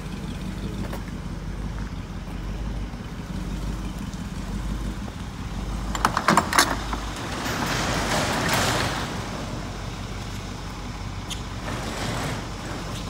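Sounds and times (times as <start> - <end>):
roll-up cargo door clattering: 5.2 - 13.0
sharp metallic clicks and rattles: 5.4 - 9.5.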